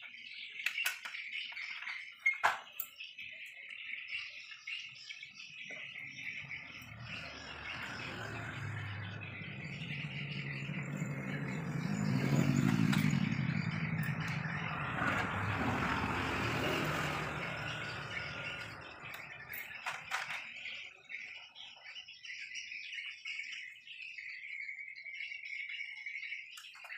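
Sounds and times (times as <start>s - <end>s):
motor vehicle passing by: 6.4s - 20.4s.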